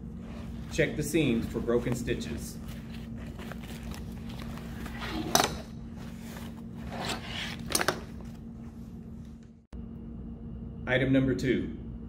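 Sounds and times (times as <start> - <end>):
low hum: 0.0 - 12.0
fabric bag rustling: 0.1 - 8.8.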